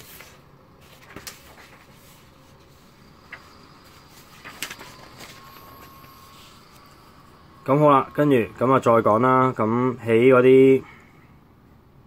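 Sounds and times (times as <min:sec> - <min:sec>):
pages being turned: 0:00.0 - 0:07.6
low background hiss: 0:00.0 - 0:12.0.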